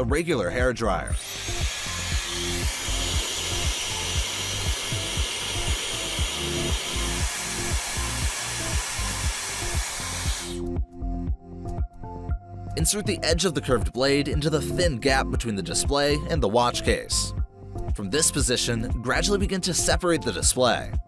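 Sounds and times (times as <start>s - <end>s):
hair dryer blowing: 1.1s - 10.7s.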